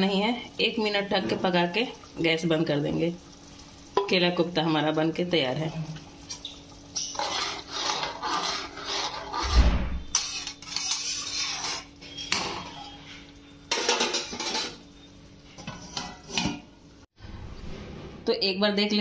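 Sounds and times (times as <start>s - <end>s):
metal utensils scraping a pot: 7.0s - 14.8s, 15.6s - 16.6s.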